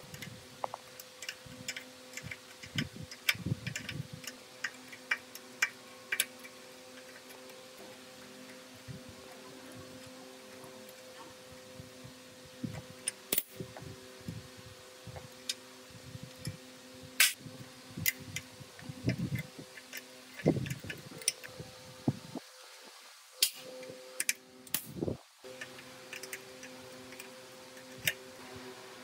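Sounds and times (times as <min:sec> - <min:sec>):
steady low hum: 0:00.0 - 0:29.0
tools clicking and knocking: 0:00.1 - 0:08.6, 0:25.5 - 0:28.2.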